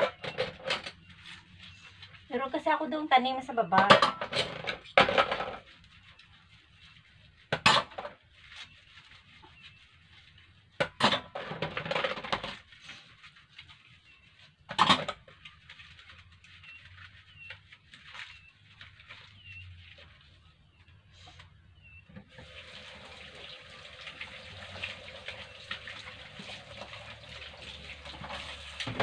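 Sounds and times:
dishes clinking and clattering: 0:03.8 - 0:05.7, 0:10.8 - 0:12.6, 0:14.7 - 0:15.2.

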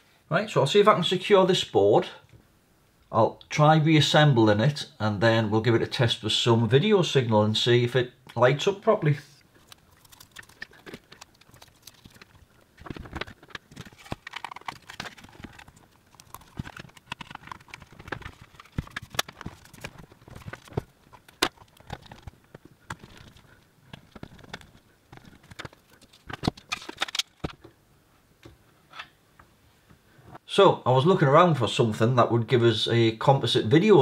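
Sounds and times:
plastic parts clicking and knocking: 0:09.6 - 0:27.8.

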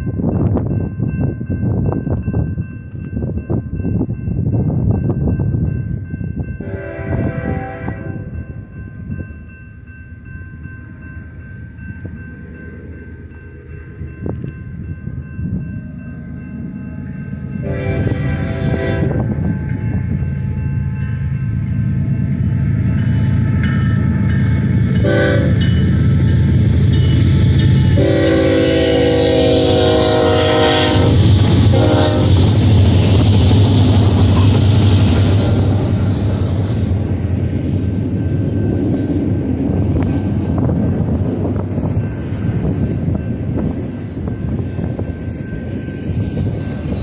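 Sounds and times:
rail noise: 0:00.0 - 0:47.0
locomotive air horn blasts: 0:06.6 - 0:08.4, 0:17.6 - 0:19.4, 0:25.0 - 0:25.7, 0:27.9 - 0:32.6.

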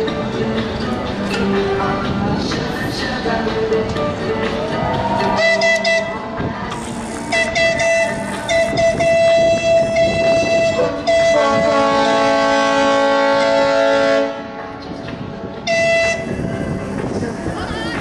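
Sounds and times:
tugboat whistle blast: 0:05.4 - 0:06.2, 0:07.3 - 0:14.3
deep chord horn: 0:06.8 - 0:14.7.

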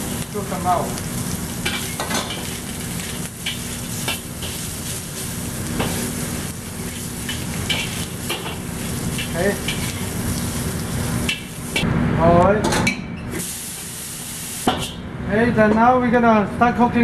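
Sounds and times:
beef sizzling in a wok: 0:00.0 - 0:11.9, 0:13.4 - 0:15.0
metal spatula scraping wok: 0:06.8 - 0:10.6.

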